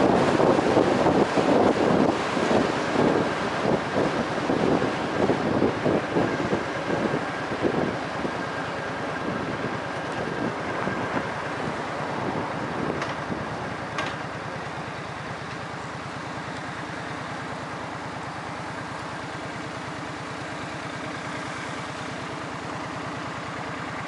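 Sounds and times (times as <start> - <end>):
engine idling: 0.0 - 24.0.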